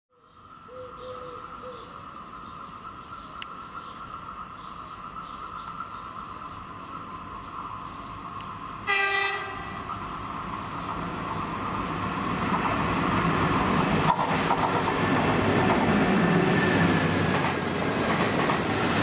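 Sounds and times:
high-pitched train hum: 0.4s - 19.0s
train horn blast: 8.9s - 9.9s.

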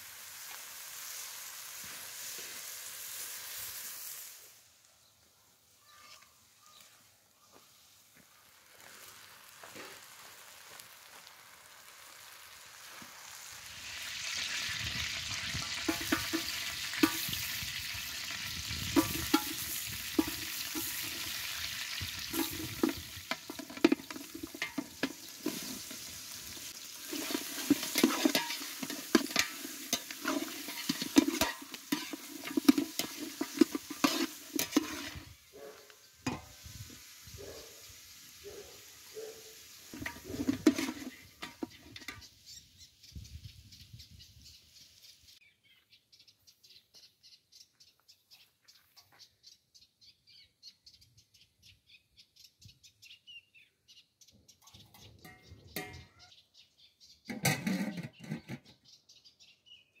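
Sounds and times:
meat and onions sizzling: 0.0s - 42.8s
metal spatula scraping pot: 15.6s - 17.6s, 18.8s - 35.3s, 39.9s - 42.3s, 54.8s - 56.2s, 57.3s - 58.8s.

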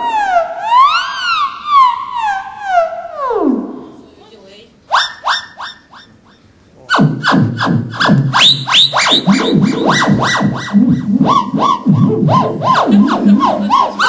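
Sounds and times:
theremin swooping glides: 6.9s - 14.0s.

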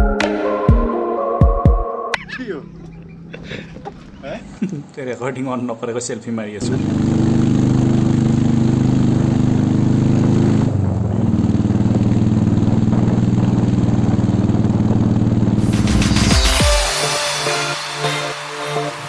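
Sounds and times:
motorcycle engine running: 6.6s - 16.6s.

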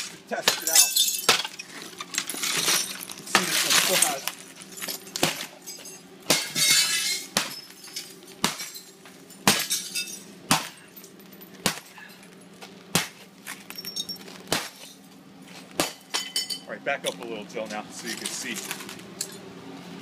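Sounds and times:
hammer cracking glass: 0.0s - 11.0s, 11.6s - 11.9s, 13.8s - 15.0s, 15.8s - 16.6s
broken glass tinkling: 0.5s - 11.5s, 13.6s - 15.0s, 16.1s - 16.7s.

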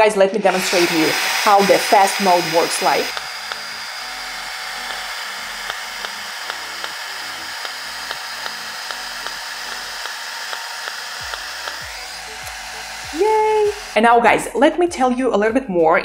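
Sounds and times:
cooling fan whirring: 0.0s - 14.6s
device clicking: 3.0s - 3.8s, 4.4s - 12.6s.

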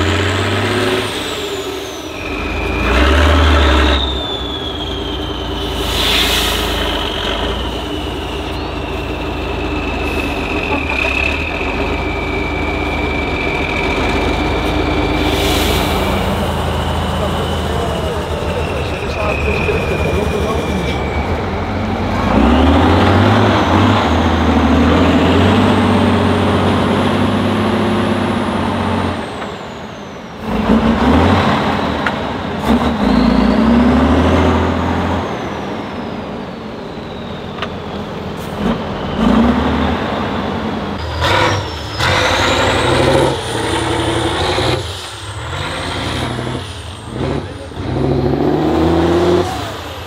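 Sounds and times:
diesel truck engine revving: 0.0s - 50.0s
high whistle: 1.1s - 26.8s, 35.2s - 45.4s.

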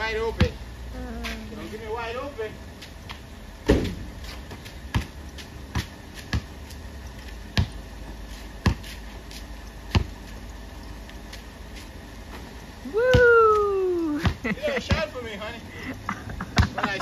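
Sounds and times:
basketball bouncing on concrete: 0.2s - 0.6s, 3.1s - 7.8s, 8.6s - 9.2s, 9.8s - 10.4s, 13.1s - 13.3s, 14.1s - 15.2s, 16.5s - 16.8s.

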